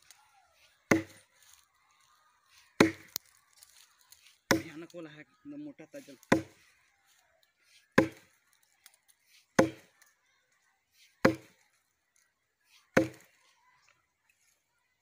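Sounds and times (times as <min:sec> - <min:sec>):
axe chopping into log: 0:00.9 - 0:01.2, 0:02.8 - 0:03.2, 0:04.5 - 0:04.8, 0:06.2 - 0:06.6, 0:08.0 - 0:08.3, 0:09.6 - 0:09.9, 0:11.2 - 0:11.5, 0:13.0 - 0:13.3.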